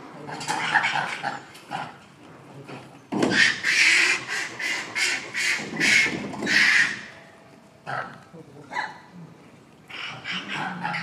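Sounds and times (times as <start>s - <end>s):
harsh animal calls: 0.2s - 2.0s, 3.2s - 7.2s, 9.9s - 11.0s.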